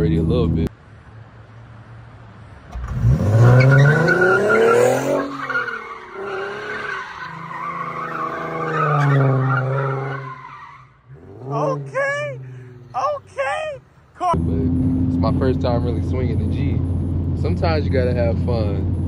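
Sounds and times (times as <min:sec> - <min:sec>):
car engine revving hard: 0:02.8 - 0:06.9
tyres spinning and squealing: 0:02.9 - 0:14.0.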